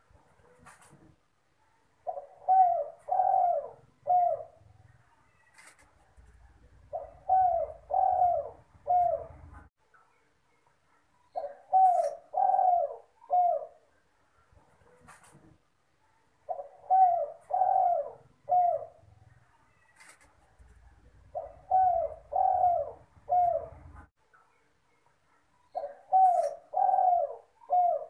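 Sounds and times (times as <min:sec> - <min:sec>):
dove cooing: 0:02.0 - 0:05.0, 0:06.5 - 0:09.7, 0:11.3 - 0:13.9, 0:16.5 - 0:19.2, 0:20.9 - 0:24.1, 0:25.7 - 0:28.0.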